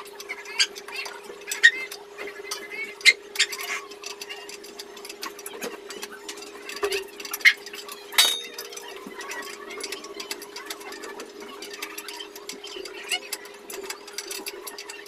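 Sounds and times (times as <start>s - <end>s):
metal clicks and clinks: 8.2s - 9.0s.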